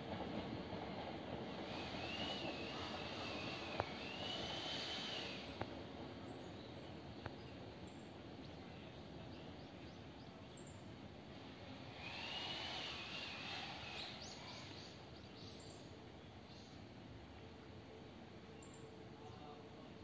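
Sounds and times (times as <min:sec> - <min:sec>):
faint clicks: 0:03.6 - 0:04.0, 0:05.4 - 0:05.8.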